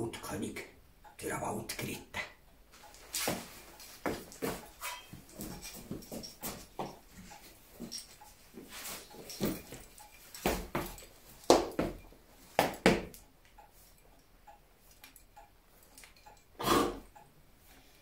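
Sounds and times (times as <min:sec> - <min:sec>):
man snorting like a horse: 0:16.6 - 0:17.2.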